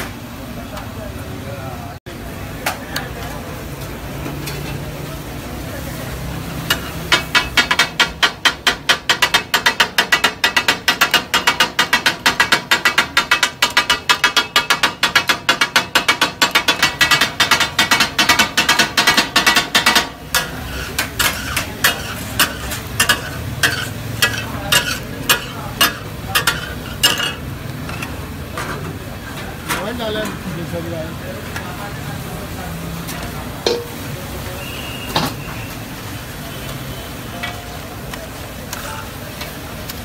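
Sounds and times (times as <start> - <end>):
food sizzling on griddle: 0.0 - 40.0
metal blades chopping on griddle: 6.6 - 28.8.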